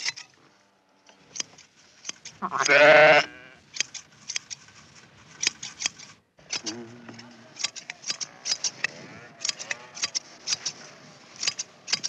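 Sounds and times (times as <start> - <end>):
shears clicking: 1.1 - 2.8, 3.7 - 12.0
sheep bleating: 2.4 - 3.6, 8.9 - 10.0.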